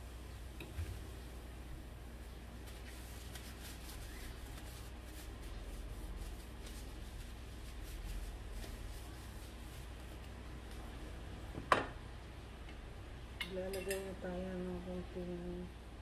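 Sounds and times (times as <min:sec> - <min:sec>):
paper towel wiping metal saucepan: 0:02.2 - 0:10.3.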